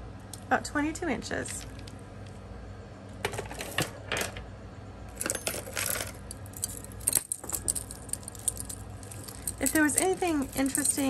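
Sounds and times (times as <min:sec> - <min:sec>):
beads and metal pieces clinking: 0:05.2 - 0:11.0.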